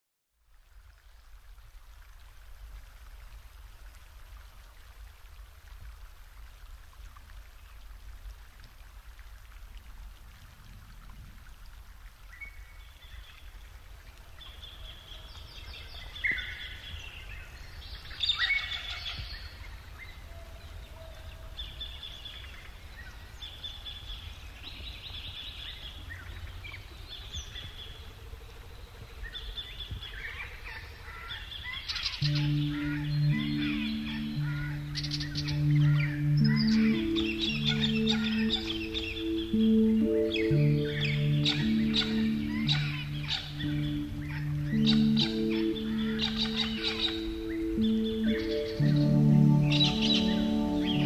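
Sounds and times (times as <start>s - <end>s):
birds chirping: 31.0s - 51.0s.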